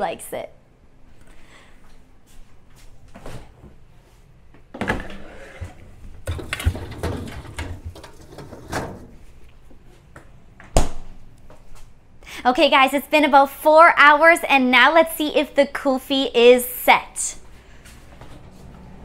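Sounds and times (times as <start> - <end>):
freezer drawer sliding: 4.8 - 9.3
scraping and knocks: 4.8 - 9.3.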